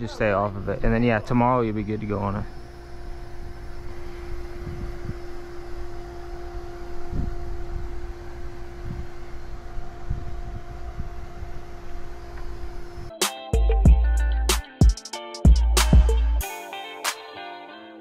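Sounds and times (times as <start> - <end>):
pump sprayer humming: 0.0 - 13.1.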